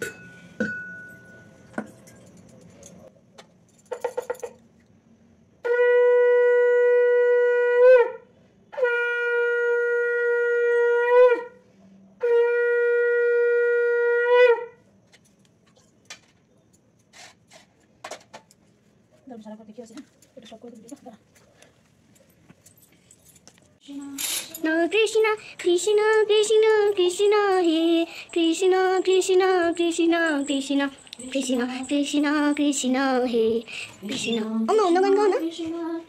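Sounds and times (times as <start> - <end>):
conch shell blown: 5.6 - 14.8.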